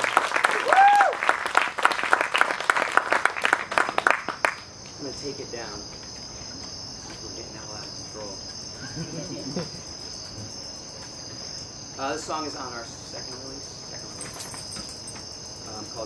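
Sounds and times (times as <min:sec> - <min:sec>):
audience applause: 0:00.0 - 0:04.6
night insects chirring: 0:00.0 - 0:16.0.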